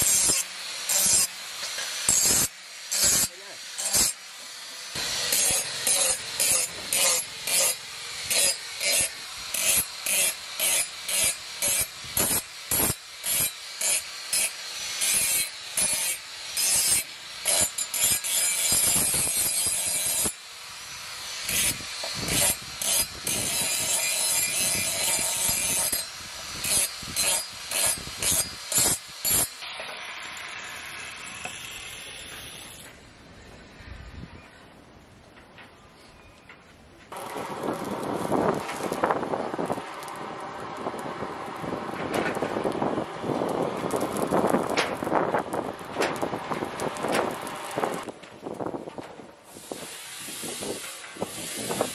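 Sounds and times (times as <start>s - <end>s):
angle grinder grinding steel: 0.0s - 33.0s.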